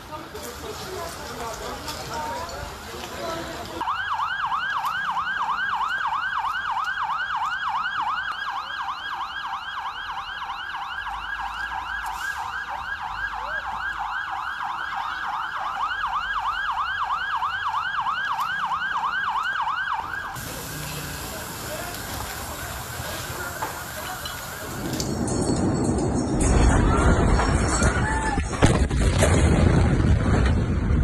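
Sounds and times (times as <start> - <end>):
emergency siren yelping: 3.8 - 25.3.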